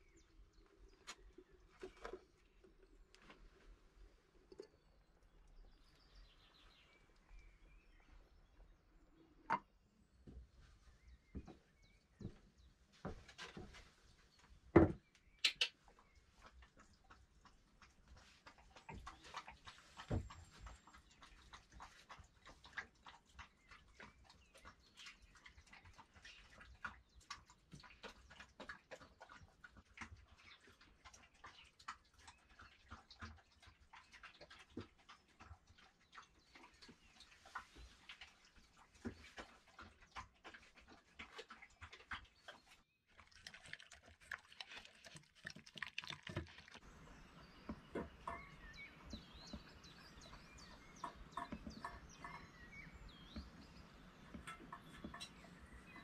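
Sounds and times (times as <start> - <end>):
clay pot and utensils clinking: 47.6 - 56.0.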